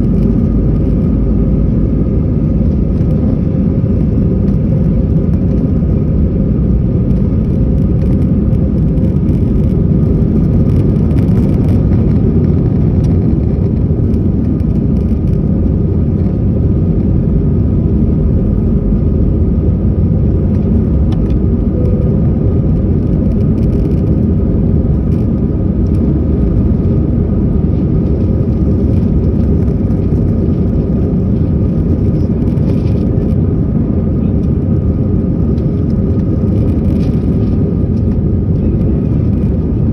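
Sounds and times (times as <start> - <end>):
jet engines roaring: 0.0 - 39.9
steady droning tone: 0.0 - 39.9.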